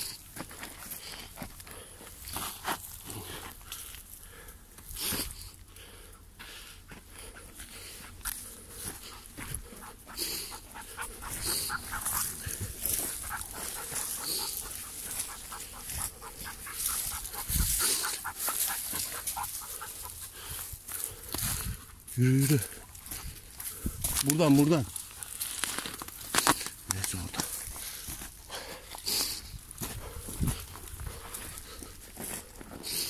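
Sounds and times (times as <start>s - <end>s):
dog panting: 5.8s - 21.4s, 27.5s - 33.0s
footsteps on dry leaves: 7.7s - 33.0s
twigs brushing: 10.6s - 20.0s.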